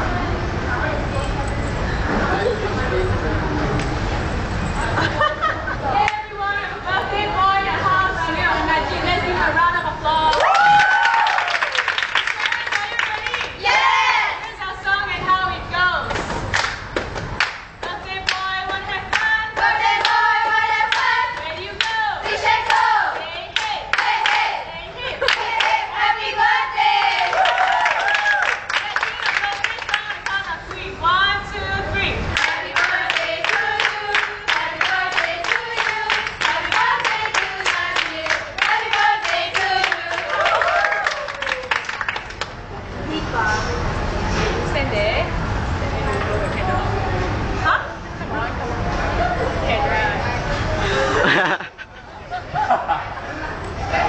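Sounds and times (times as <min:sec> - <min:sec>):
people clapping in time: 0:10.3 - 0:13.6, 0:16.5 - 0:22.0, 0:27.0 - 0:30.8, 0:32.4 - 0:42.6
group singing birthday song: 0:17.9 - 0:27.4, 0:29.3 - 0:40.6.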